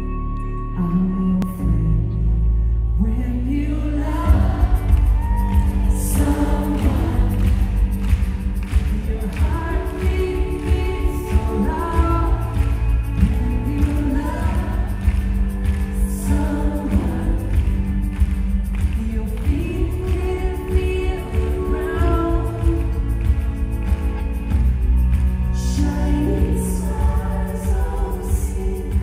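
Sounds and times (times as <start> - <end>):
boomy bass: 0.0 - 29.0
live band playing: 4.3 - 28.0.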